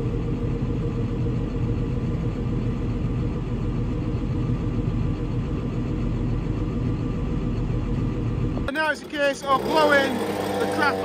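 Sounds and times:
tractor diesel engine running: 0.0 - 11.0.

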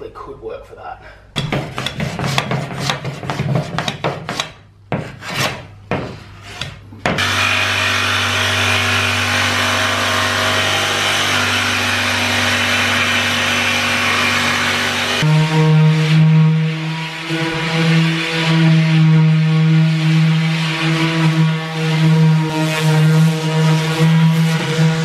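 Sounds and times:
hand tool rubbing plywood edge: 1.4 - 7.4, 15.1 - 25.0
jigsaw cutting plywood: 7.2 - 15.9.

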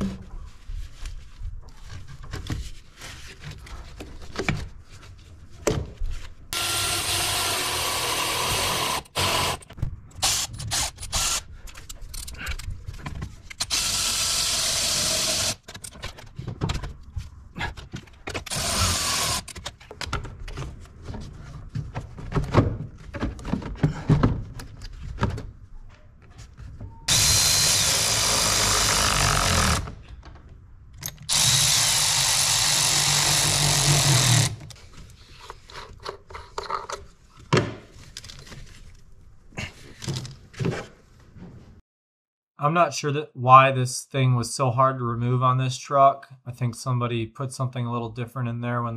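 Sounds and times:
electric ratchet running: 6.6 - 11.4, 13.6 - 15.6, 18.5 - 19.5, 27.1 - 29.8, 31.3 - 34.6.

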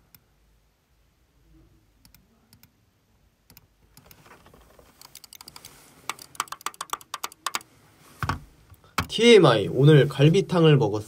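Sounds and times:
typing on computer keyboard: 5.0 - 7.6.

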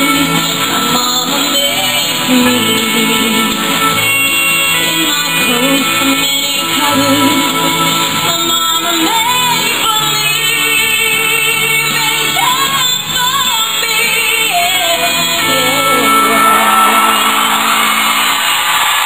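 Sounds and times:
woman singing country ballad: 0.0 - 18.4
instrumental accompaniment: 0.0 - 19.0.

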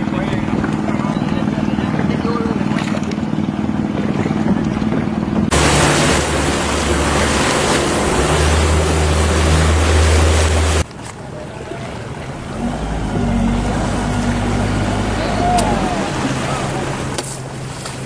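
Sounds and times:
wind buffeting microphone: 0.0 - 10.8
boat engine drone: 0.0 - 18.0
water rushing past boat: 0.0 - 18.0.

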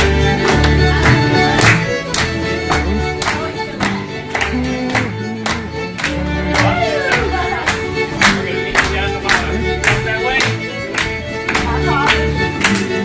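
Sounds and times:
fiddle music with steady beat: 0.0 - 13.0.

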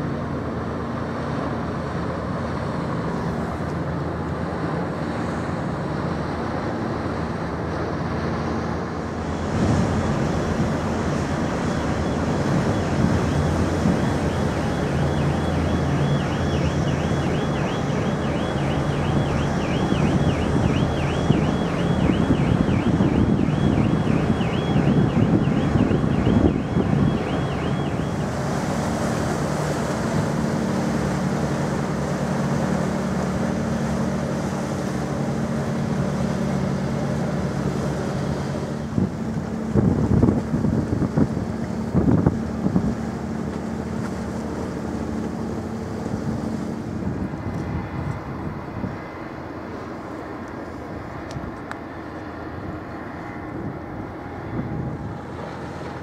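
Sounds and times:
ferry engines droning: 0.0 - 56.0
high warbling tone: 10.4 - 28.6
wind buffeting microphone: 18.7 - 28.4, 38.9 - 43.1, 53.4 - 56.0.

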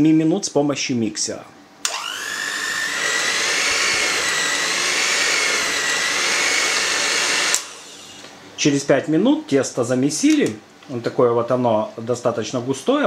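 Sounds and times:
electric hand mixer motor whine: 1.9 - 8.3.

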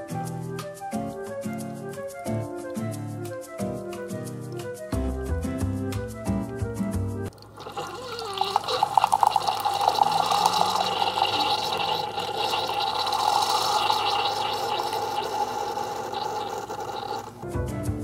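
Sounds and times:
coffee streaming into mug: 7.3 - 17.4
espresso machine pump humming: 7.3 - 17.4
espresso machine sputtering: 7.3 - 17.4.

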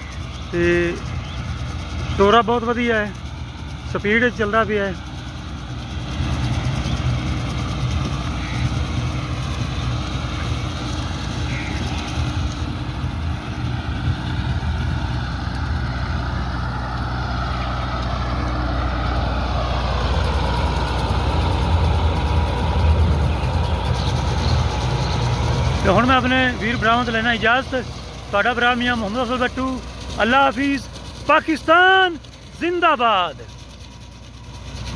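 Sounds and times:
tractor diesel engine under load: 0.0 - 34.9.

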